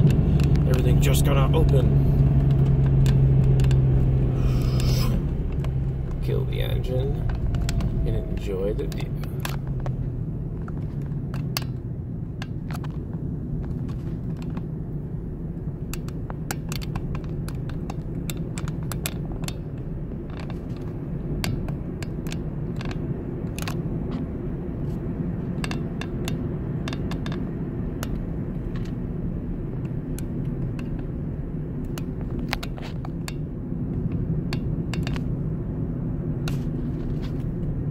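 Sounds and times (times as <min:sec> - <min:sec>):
small clicks and rattles: 0:00.0 - 0:04.0, 0:15.8 - 0:24.3, 0:25.4 - 0:29.0, 0:29.7 - 0:31.2, 0:31.8 - 0:35.4
tyres rumbling on pavement: 0:00.0 - 0:37.9.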